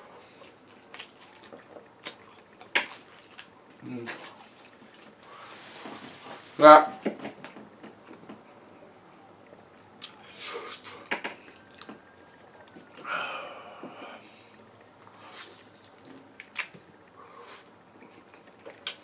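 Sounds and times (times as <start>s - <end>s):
man chewing and biting: 0.1s - 5.2s, 10.0s - 12.0s, 15.0s - 19.0s.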